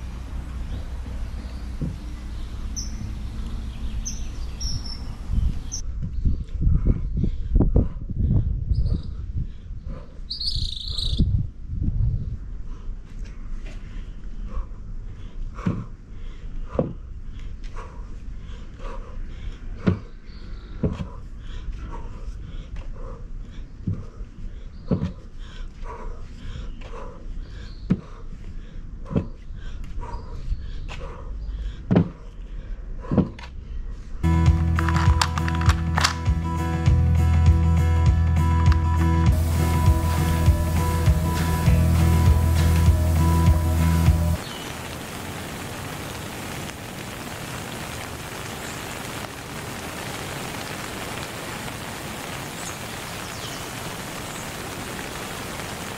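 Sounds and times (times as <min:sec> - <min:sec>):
steady rain: 0:34.2 - 0:37.0, 0:38.6 - 0:55.9.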